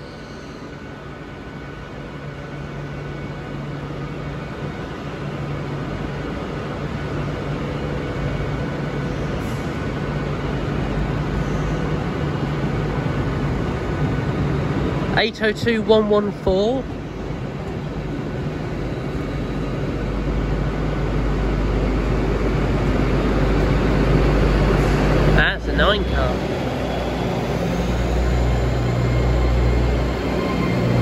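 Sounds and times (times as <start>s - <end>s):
train running: 0.0s - 31.0s.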